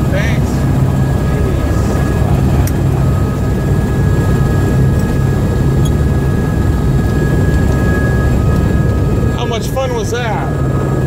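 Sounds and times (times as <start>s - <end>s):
faint high whine: 0.0s - 11.0s
helicopter turbine and rotor drone: 0.0s - 11.0s.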